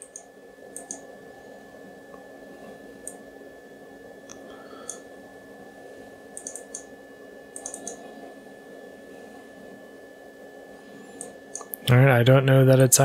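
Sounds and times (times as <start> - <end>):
faint steady hum: 0.0 - 13.0
mouse buttons clicking: 0.8 - 1.0, 6.4 - 6.9, 7.6 - 8.0.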